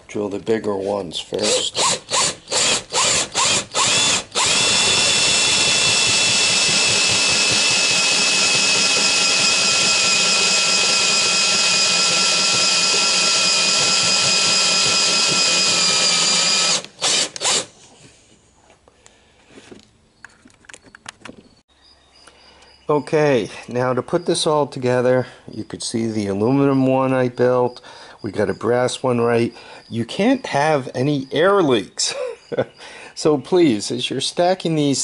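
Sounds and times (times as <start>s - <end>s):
drill boring through metal: 1.3s - 17.7s.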